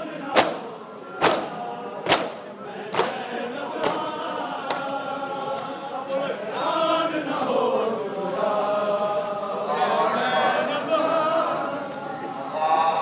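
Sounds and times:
men chanting a lament: 0.0 - 13.0
sharp hand slaps: 2.1 - 3.2.

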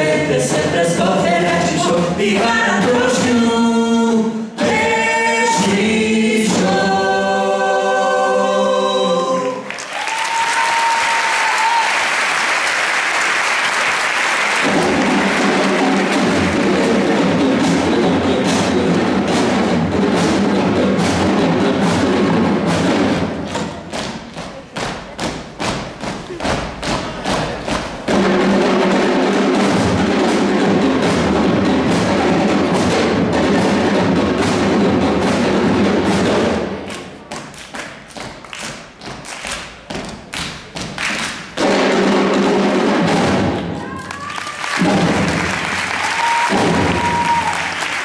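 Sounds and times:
drums playing: 0.0 - 7.3, 13.2 - 48.0
band playing live: 14.5 - 37.2, 41.4 - 48.0.

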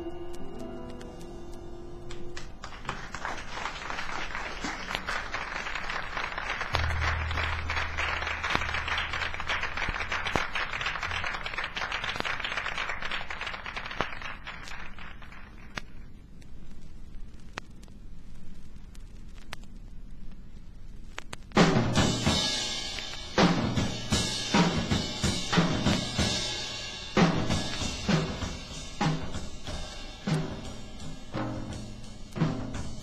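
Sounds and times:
jazz band playing: 0.0 - 2.6, 6.7 - 10.4, 21.6 - 26.4, 27.1 - 33.0
audience applause: 2.1 - 15.8
low note: 6.7 - 11.3.

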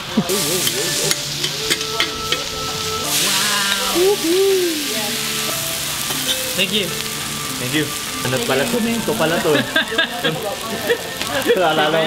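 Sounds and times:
noodles sizzling on griddle: 0.0 - 12.0
spatulas clinking on plate: 0.5 - 2.7.

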